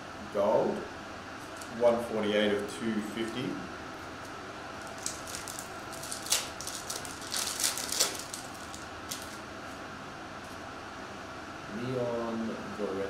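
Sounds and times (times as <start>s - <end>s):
foil wrapper crinkling and tearing: 4.8s - 9.4s.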